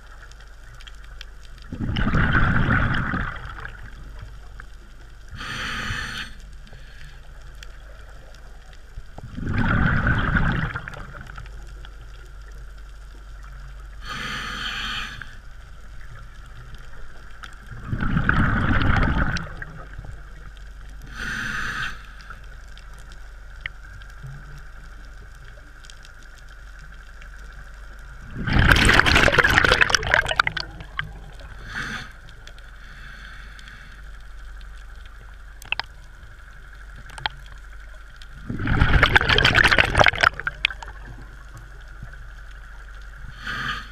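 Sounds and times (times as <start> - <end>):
diver breathing through regulator: 5.4 - 7.4, 14.0 - 15.4, 21.0 - 22.5, 28.4 - 34.2, 43.3 - 43.9.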